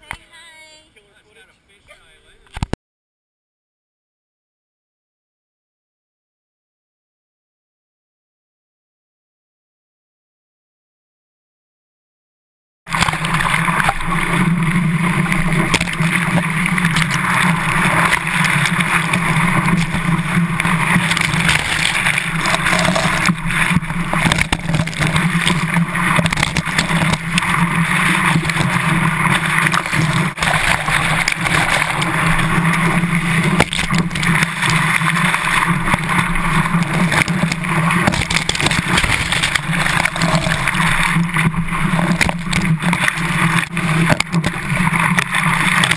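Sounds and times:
low hum: 0:12.9 - 0:45.9
water rushing and splashing: 0:12.9 - 0:45.9.

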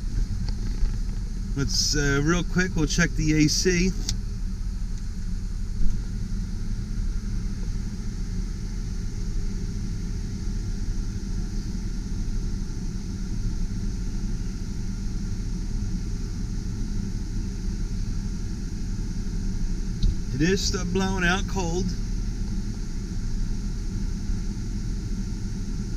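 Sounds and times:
blower fan pushing air: 0:00.0 - 0:25.9.

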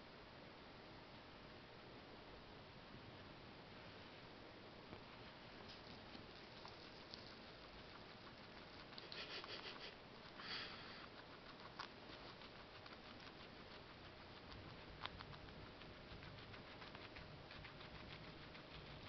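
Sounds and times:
guinea pig chewing: 0:04.9 - 0:19.0.

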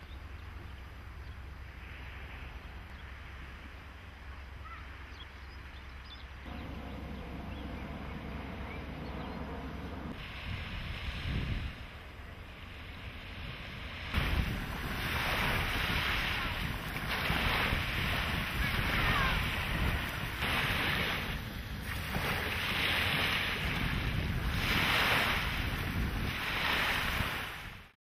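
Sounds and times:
wind buffeting microphone: 0:06.4 - 0:27.9.

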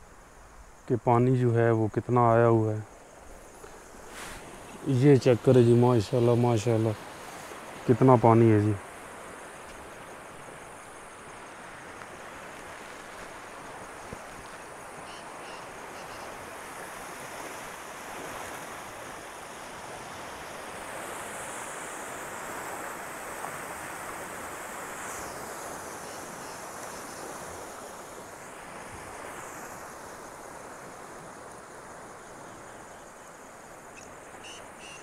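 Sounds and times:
stream rushing: 0:00.0 - 0:35.0.

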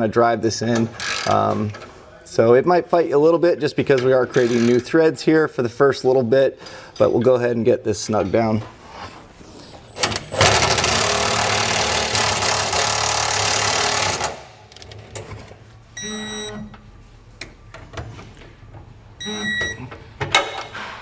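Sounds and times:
impact wrench hammering screw: 0:10.4 - 0:14.5.

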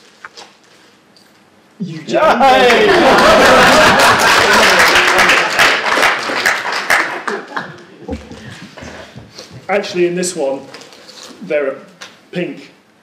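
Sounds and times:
audience clapping: 0:02.5 - 0:08.8.

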